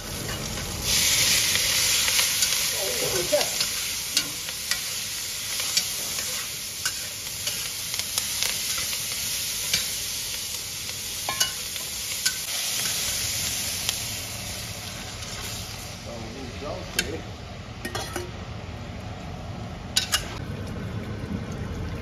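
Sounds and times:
metal spatula scraping wok: 0.0 - 7.8, 14.8 - 15.7, 20.0 - 20.4
food sizzling in hot oil: 0.0 - 18.4, 19.9 - 21.8.

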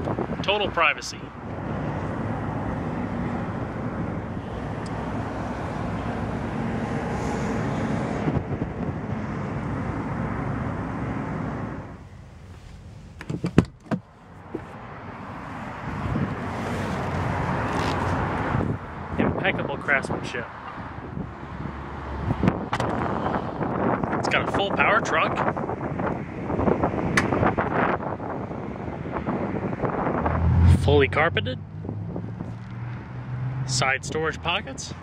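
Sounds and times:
outdoor rushing noise: 0.0 - 13.0
sharp clicks and knocks: 13.2 - 14.8.

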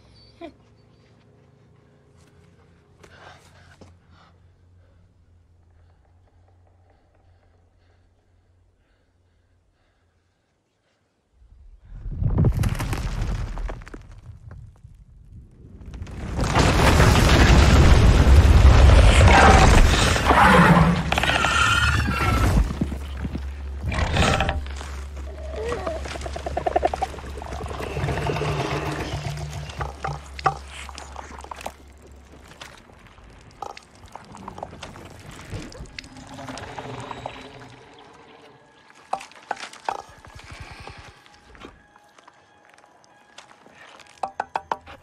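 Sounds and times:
debris crashing and rattling: 15.8 - 24.9.

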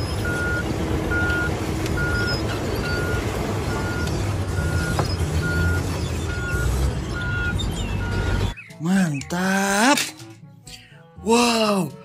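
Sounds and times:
diesel engine rumble: 0.0 - 8.6
backup alarm beeping: 0.2 - 8.6.

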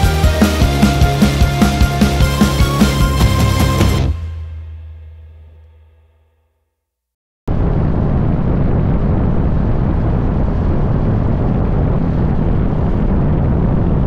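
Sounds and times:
wind rumble on microphone: 7.5 - 14.0.

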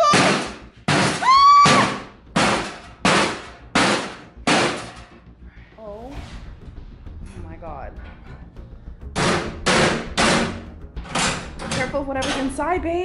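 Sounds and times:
hammer striking metal: 0.0 - 5.2, 9.2 - 12.7.

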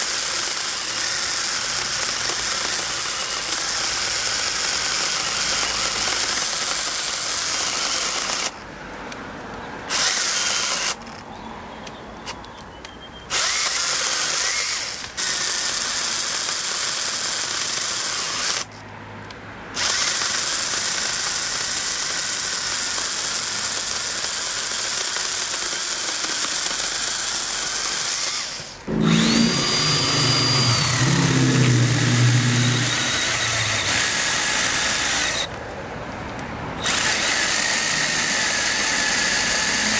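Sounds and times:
chainsaw motor with high whine: 0.0 - 8.6, 9.9 - 11.0, 13.3 - 18.7, 19.8 - 35.6, 36.8 - 39.9
cordless chainsaw cutting wood: 0.0 - 8.6, 9.9 - 11.0, 13.3 - 18.7, 19.8 - 35.6, 36.8 - 39.9.

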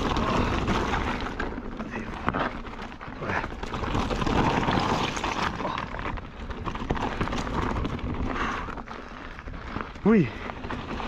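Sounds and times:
tyres crunching over stones: 0.0 - 11.0
wind noise on camera: 3.8 - 8.8.

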